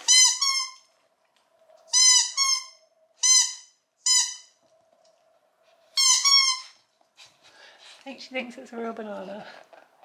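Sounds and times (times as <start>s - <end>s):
dog toy squeaking: 0.0s - 0.9s, 1.9s - 4.6s, 6.0s - 6.8s.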